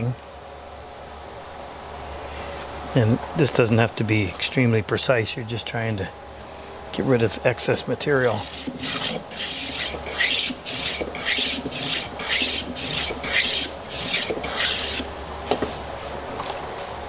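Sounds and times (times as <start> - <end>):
hand plane shaving wood: 8.2 - 15.1.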